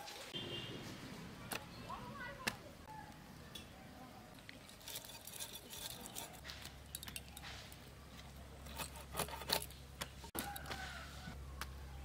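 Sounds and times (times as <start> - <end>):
fish scales scraping on blade: 4.7 - 6.5.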